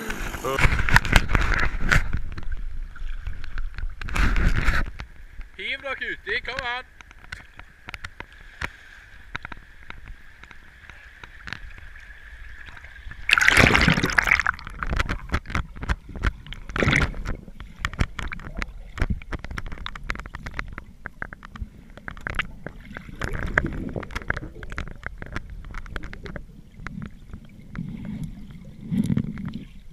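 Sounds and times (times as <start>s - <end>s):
underwater rush of water: 6.3s - 29.9s.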